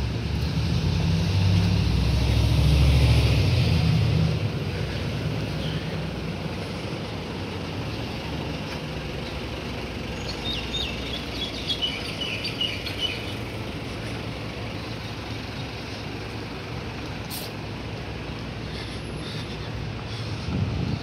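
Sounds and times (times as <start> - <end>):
low rumble of traffic: 0.0 - 21.0
bird chirping: 10.2 - 13.5.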